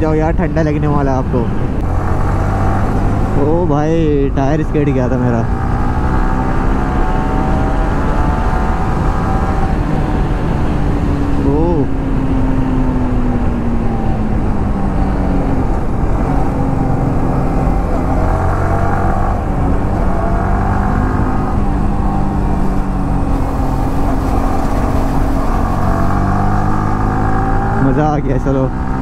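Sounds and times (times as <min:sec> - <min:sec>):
motorcycle engine running: 0:16.5 - 0:29.0.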